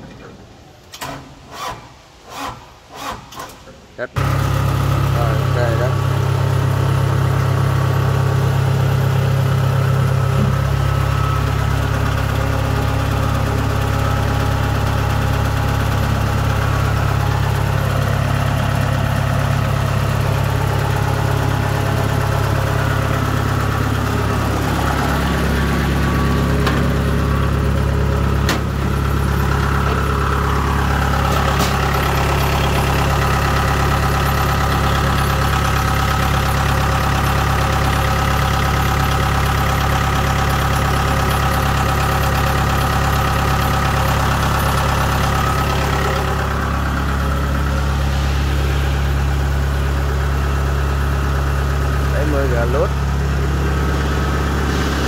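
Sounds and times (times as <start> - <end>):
combine harvester diesel engine: 0.0 - 55.0.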